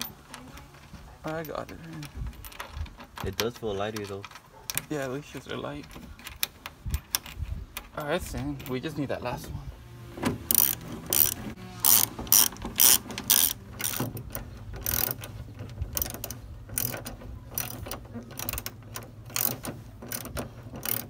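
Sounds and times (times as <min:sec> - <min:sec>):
ratchet wrench clicking: 0:10.5 - 0:21.0.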